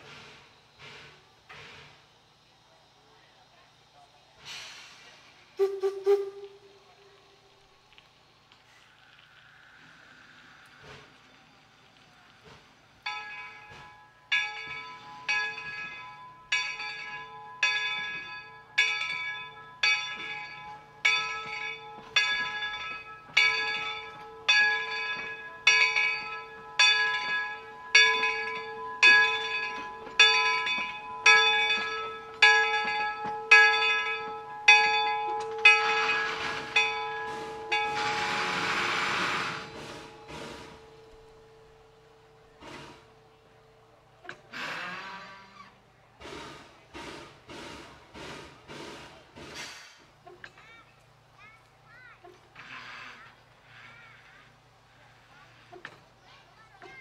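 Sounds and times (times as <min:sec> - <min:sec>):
rushing hiss: 0:00.0 - 0:13.0, 0:36.1 - 0:43.6, 0:44.5 - 0:50.2
locomotive bell ringing: 0:13.0 - 0:44.5.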